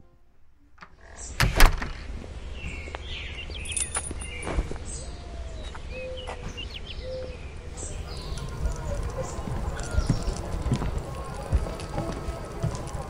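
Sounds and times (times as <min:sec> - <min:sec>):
birds chirping: 0:00.9 - 0:13.0
whistled bird notes: 0:02.4 - 0:11.5.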